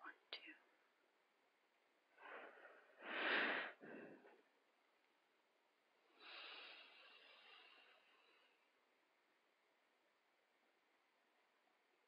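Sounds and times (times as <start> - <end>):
person breathing: 2.1 - 4.5, 6.1 - 8.8.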